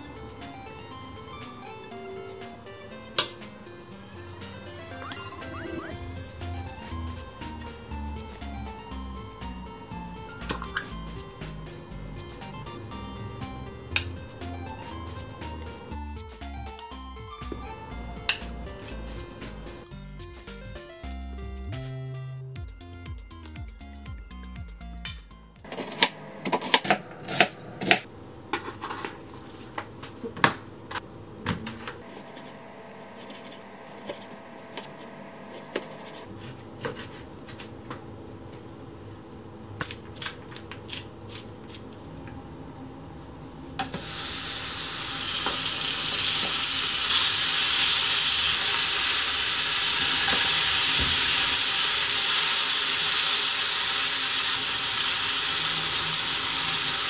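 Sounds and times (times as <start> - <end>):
meat sizzling in a frying pan: 44.0 - 57.0.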